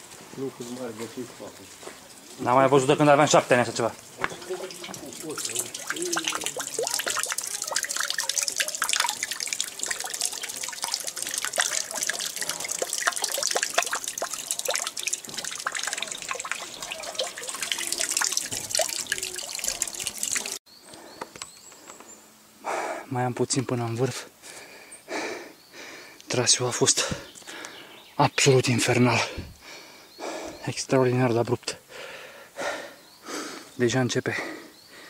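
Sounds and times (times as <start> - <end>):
running water splashing: 2.1 - 20.6.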